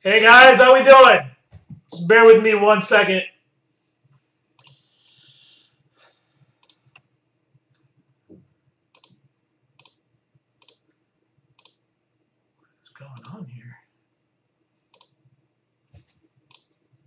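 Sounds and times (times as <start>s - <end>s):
computer mouse clicks: 4.6s - 4.9s, 6.6s - 7.1s, 8.9s - 9.2s, 9.8s - 10.0s, 10.6s - 10.9s, 11.6s - 11.8s, 14.9s - 15.2s, 16.5s - 16.8s.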